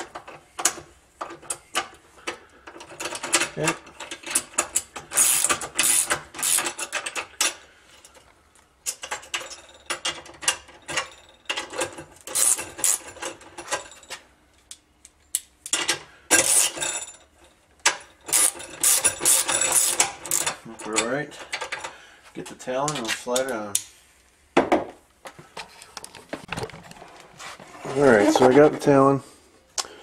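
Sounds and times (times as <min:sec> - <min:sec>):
socket ratchet wrench clicking: 0:04.8 - 0:07.0, 0:12.3 - 0:13.0, 0:18.3 - 0:20.6.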